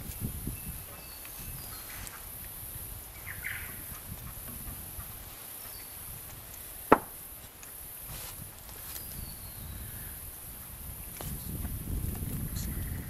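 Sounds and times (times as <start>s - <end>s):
sharp knock of tape roll: 6.9s - 7.2s.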